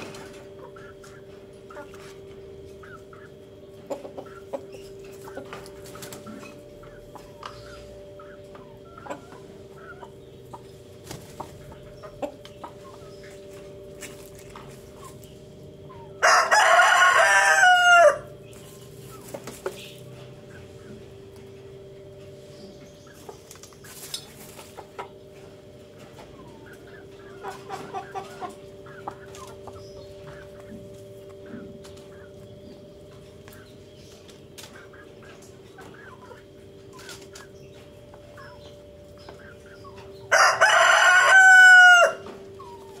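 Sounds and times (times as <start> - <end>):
rooster crowing: 16.0 - 18.4, 40.3 - 42.4.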